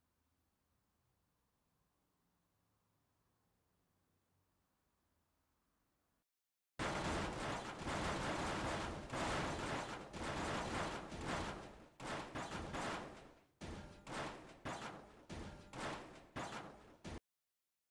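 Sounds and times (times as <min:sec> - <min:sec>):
sharp bangs: 0:06.8 - 0:17.2.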